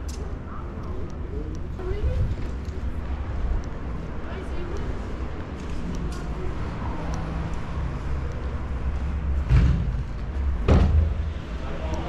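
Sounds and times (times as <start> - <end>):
steady low rumble: 0.0 - 12.0
loud dull thumps: 10.6 - 11.4.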